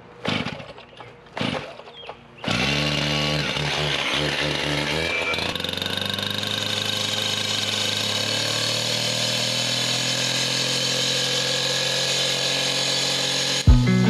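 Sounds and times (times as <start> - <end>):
power saw motor running: 0.0 - 14.0.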